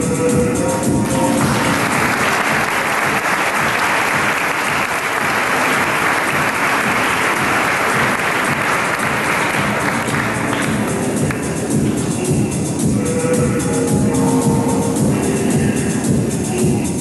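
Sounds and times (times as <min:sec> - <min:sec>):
background music: 0:00.0 - 0:17.0
audience applauding: 0:01.0 - 0:11.6.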